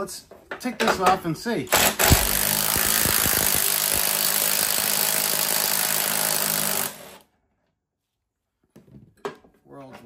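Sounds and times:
impact wrench running: 1.7s - 7.2s.

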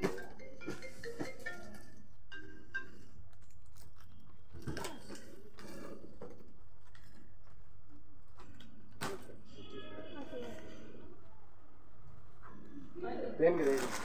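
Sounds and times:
packaging rustling: 13.6s - 14.0s.

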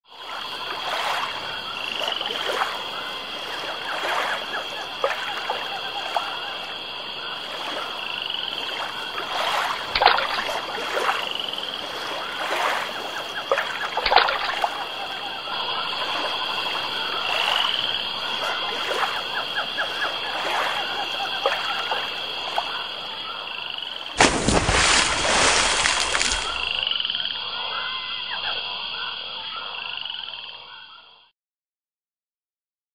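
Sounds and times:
frogs croaking: 0.1s - 31.3s
loud splash: 8.7s - 14.7s, 24.1s - 26.8s.

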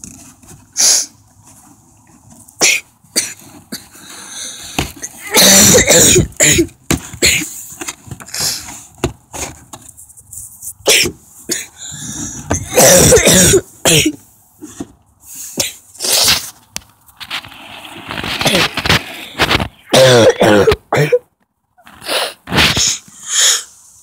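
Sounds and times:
person breathing in bursts: 3.8s - 5.0s, 8.3s - 9.0s, 11.6s - 12.5s, 22.0s - 24.0s.

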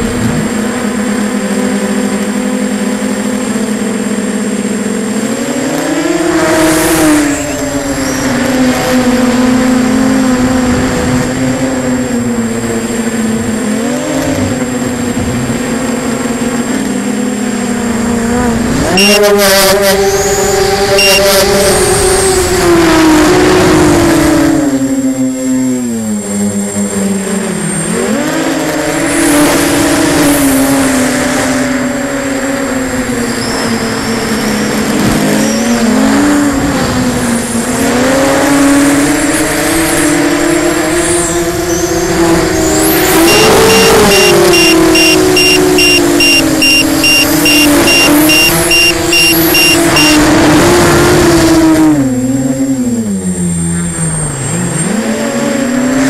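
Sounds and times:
drone motors whining: 0.0s - 22.6s, 41.0s - 55.9s
high beeping: 19.0s - 19.4s, 21.0s - 21.4s, 43.1s - 50.3s.

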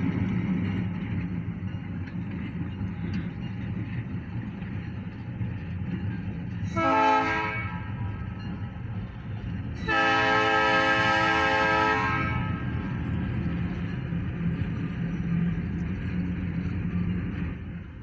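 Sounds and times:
locomotive engine rumble: 0.0s - 18.0s
locomotive horn blasts: 6.7s - 8.0s, 9.8s - 12.8s.

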